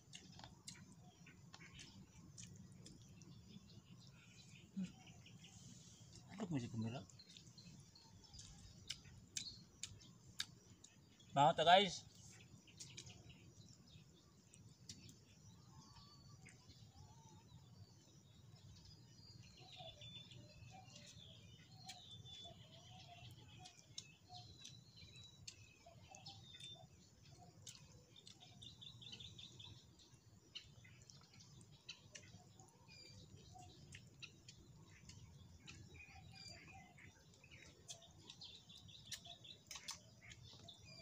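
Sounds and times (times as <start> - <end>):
birds chirping faintly: 0.0 - 41.0.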